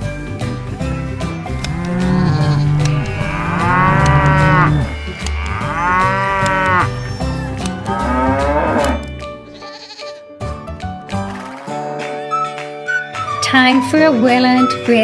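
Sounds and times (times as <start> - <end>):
background music: 0.0 - 15.0
cows mooing: 1.4 - 9.1.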